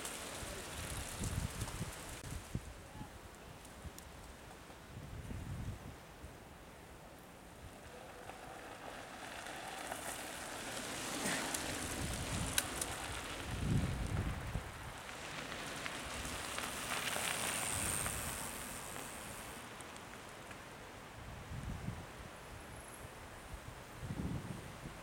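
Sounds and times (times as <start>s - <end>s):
bike tyres crunching on gravel: 0.0s - 2.7s, 7.5s - 20.8s.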